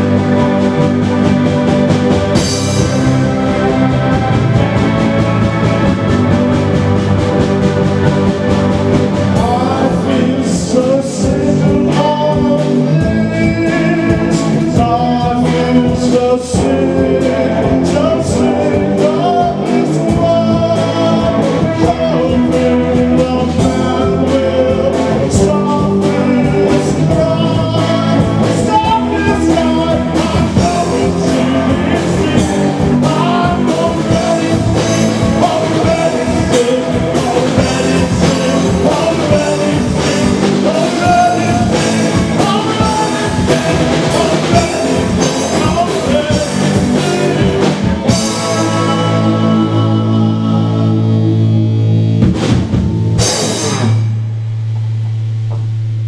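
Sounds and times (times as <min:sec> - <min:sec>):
drum kit: 0:00.0 - 0:56.0
electric guitars: 0:00.0 - 0:56.0
man singing: 0:08.0 - 0:51.9.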